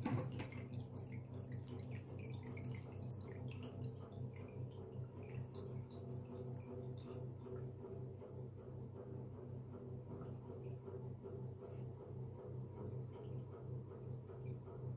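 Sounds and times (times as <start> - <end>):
water dripping into a cup: 0.0 - 7.7
steady low hum: 0.0 - 14.9.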